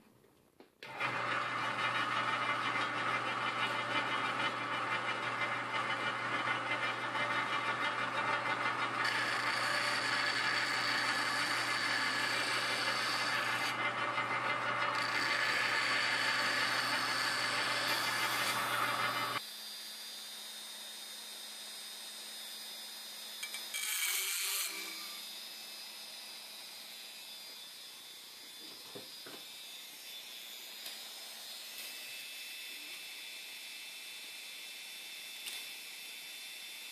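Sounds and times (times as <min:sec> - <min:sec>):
sander motor hum: 0:00.9 - 0:23.6, 0:24.7 - 0:36.9
metal grinding on abrasive: 0:06.5 - 0:19.4.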